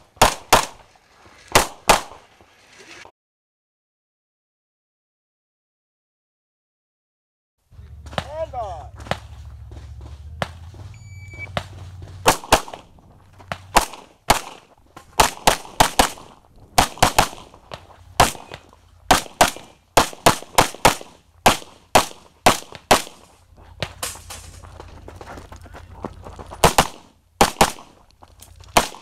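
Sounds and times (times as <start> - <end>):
rapid pistol shots: 0.1 - 0.8, 1.5 - 2.2, 11.6 - 23.3, 26.6 - 28.0, 28.8 - 29.0
shot timer beep: 10.9 - 11.6.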